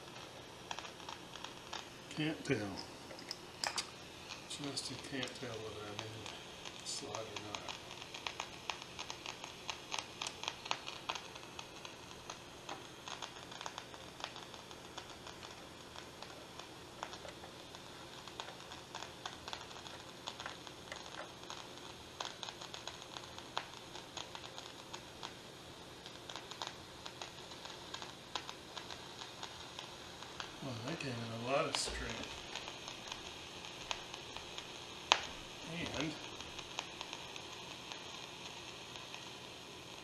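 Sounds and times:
low steady hum: 0:00.0 - 0:22.2
radio static hissing and crackling: 0:00.0 - 0:40.0.

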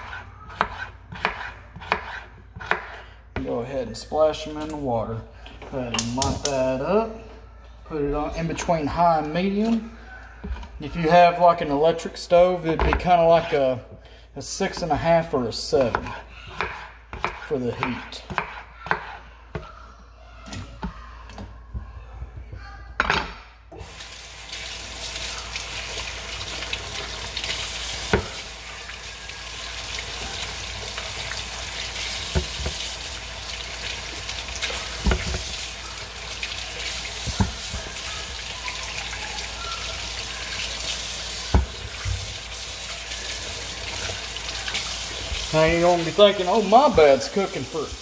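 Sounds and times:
knife on cutting board: 0:00.0 - 0:03.0
kitchen tap running: 0:23.7 - 0:48.0.

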